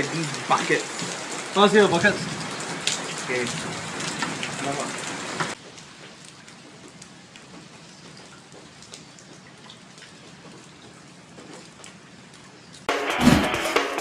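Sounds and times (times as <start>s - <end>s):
light rain falling: 0.0s - 12.9s
faint drips: 5.5s - 12.9s
loud music: 12.9s - 14.0s.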